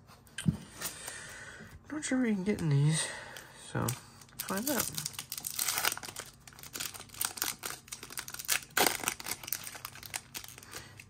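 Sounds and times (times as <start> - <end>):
plastic wrapper crinkling: 3.8 - 11.0.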